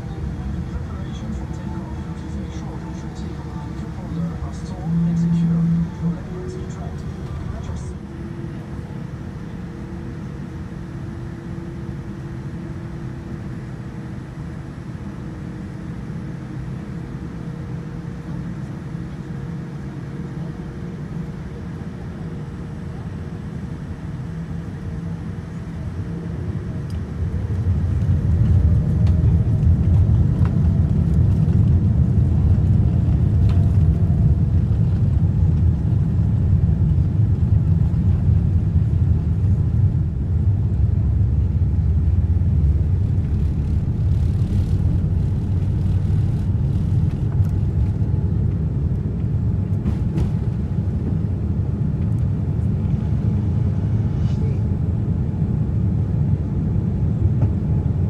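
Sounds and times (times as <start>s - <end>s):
jet engines at takeoff thrust: 0.0s - 58.0s
wheels rumbling down runway: 27.5s - 48.6s.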